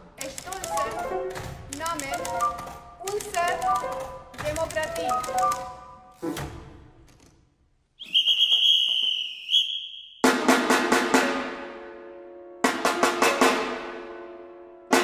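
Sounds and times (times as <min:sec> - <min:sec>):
rapid drum strikes: 0:10.2 - 0:11.6, 0:12.6 - 0:14.0.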